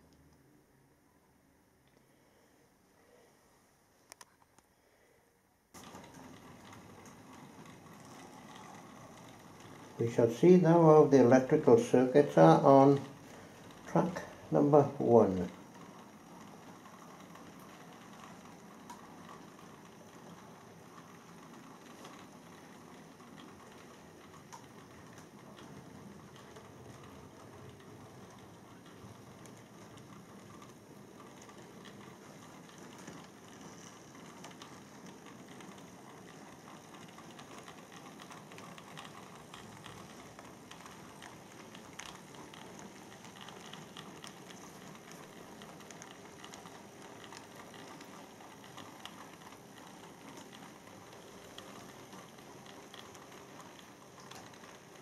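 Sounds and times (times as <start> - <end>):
model train motor whirr: 5.8 - 55.0
wheels clicking over track: 5.8 - 55.0.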